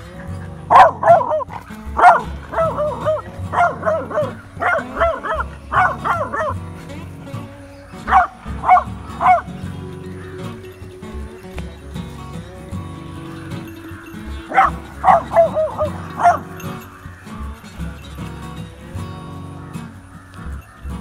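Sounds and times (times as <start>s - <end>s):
background music: 0.0s - 21.0s
dog barking: 0.5s - 7.0s, 8.0s - 9.6s, 13.8s - 17.0s.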